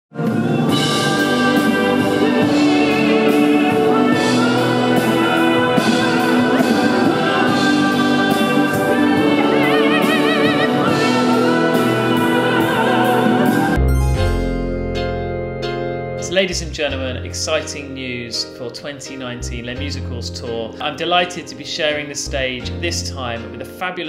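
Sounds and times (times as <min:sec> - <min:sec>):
person singing: 0:00.2 - 0:14.3
orchestral backing: 0:00.2 - 0:23.8
steady drum beat: 0:00.7 - 0:13.8.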